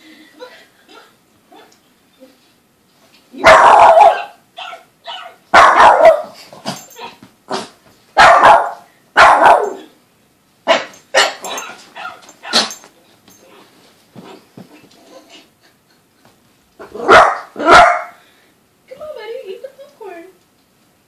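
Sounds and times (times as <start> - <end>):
puppy barking: 3.4 - 6.4, 8.2 - 9.9, 10.7 - 12.8, 16.8 - 18.2.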